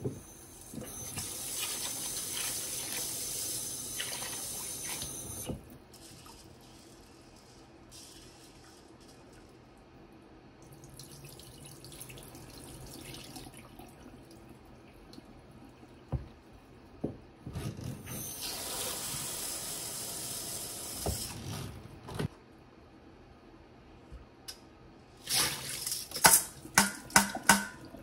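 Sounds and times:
knocks on metal bowl: 26.8s - 27.8s.

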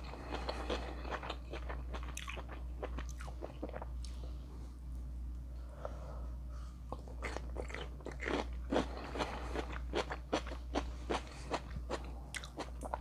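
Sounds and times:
person chewing: 0.0s - 4.2s, 6.9s - 13.0s.

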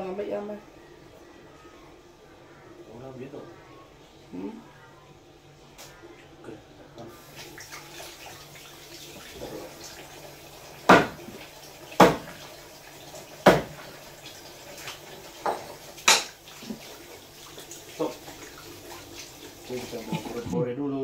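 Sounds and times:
water splashing in sink: 7.1s - 20.6s
knife chopping on wooden board: 10.9s - 11.3s, 12.0s - 12.4s, 13.4s - 13.8s.

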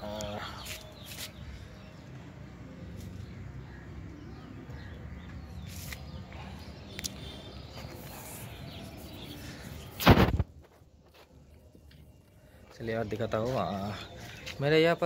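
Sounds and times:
microphone handling thump: 10.0s - 10.6s.

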